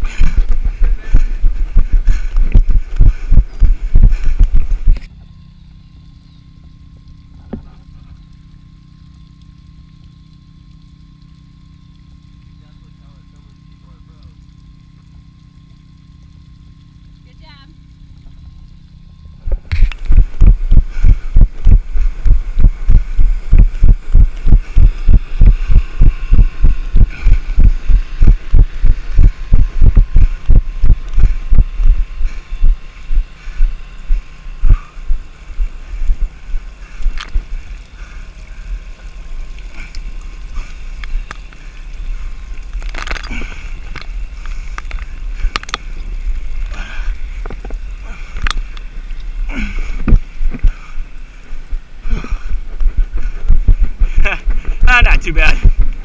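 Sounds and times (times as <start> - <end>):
running footsteps thudding: 0.0 - 5.1
softer uneven footsteps: 0.0 - 5.1, 39.8 - 54.9
wind rumble on microphone: 19.4 - 37.5, 42.4 - 54.9, 55.5 - 56.0.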